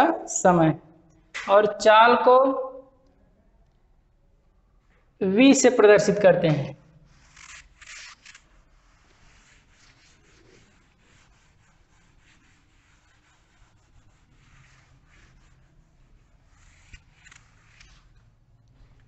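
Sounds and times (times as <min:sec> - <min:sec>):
chalk duster wiping chalkboard: 0:08.7 - 0:18.4.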